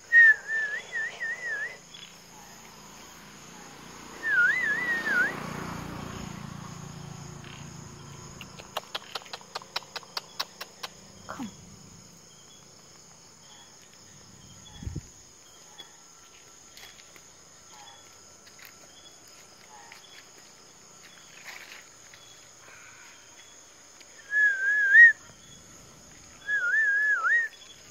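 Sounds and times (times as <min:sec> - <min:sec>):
crickets trilling: 0:00.0 - 0:27.9
loud wavering whistle: 0:04.2 - 0:05.5, 0:24.2 - 0:25.2, 0:26.4 - 0:27.6.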